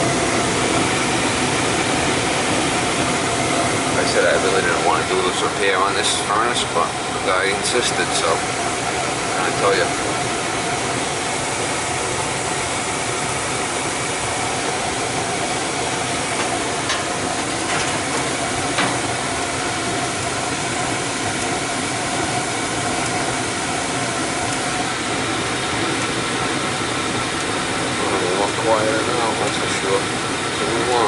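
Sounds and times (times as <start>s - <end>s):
fan motor tone: 0.0s - 31.0s
gas burners hissing: 0.0s - 31.0s.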